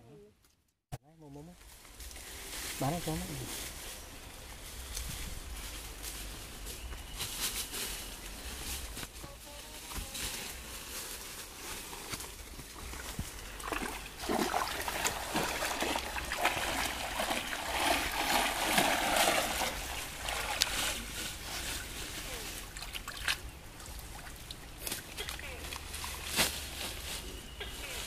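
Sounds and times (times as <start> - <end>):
branches splashing through water: 12.6 - 28.0.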